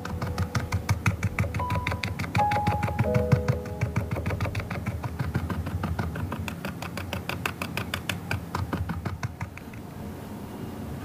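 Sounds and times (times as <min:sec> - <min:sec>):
brush tapping on canvas: 0:00.0 - 0:09.8.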